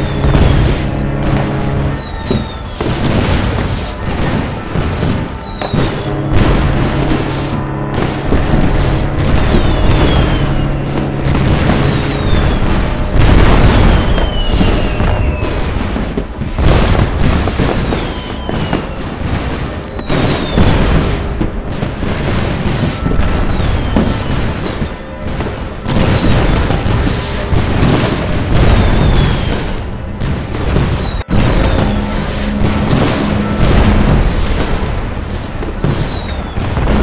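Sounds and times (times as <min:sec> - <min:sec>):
low rumble: 0:00.0 - 0:19.7, 0:26.2 - 0:37.0
falling firework whistles: 0:00.0 - 0:37.0
fireworks booming and crackling: 0:00.0 - 0:37.0.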